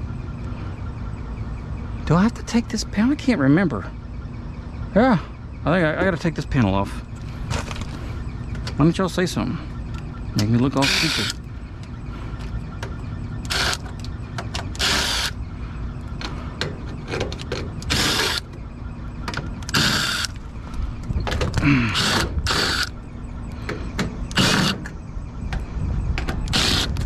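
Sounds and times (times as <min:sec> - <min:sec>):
impact driver bursts: 0:10.8 - 0:11.4, 0:13.5 - 0:13.8, 0:14.8 - 0:15.4, 0:17.9 - 0:18.4, 0:19.7 - 0:20.3, 0:21.9 - 0:22.9, 0:24.3 - 0:24.8, 0:26.5 - 0:26.9.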